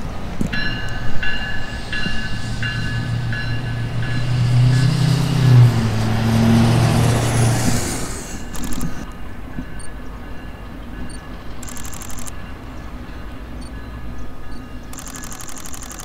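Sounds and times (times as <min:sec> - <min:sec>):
diesel locomotive engine drone: 0:00.0 - 0:16.0
wheel and rail noise: 0:00.0 - 0:16.0
locomotive bell ringing: 0:00.5 - 0:05.8, 0:08.5 - 0:15.8.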